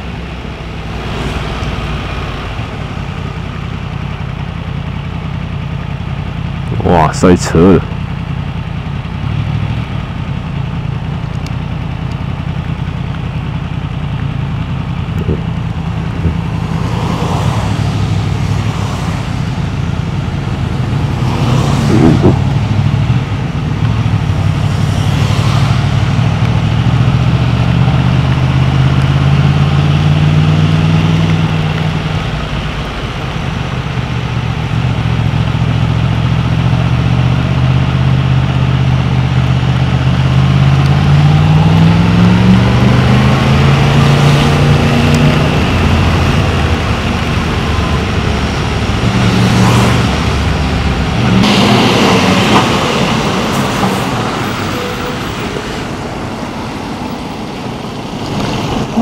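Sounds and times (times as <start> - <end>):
motorcycle engine at low revs: 7.6 - 53.9.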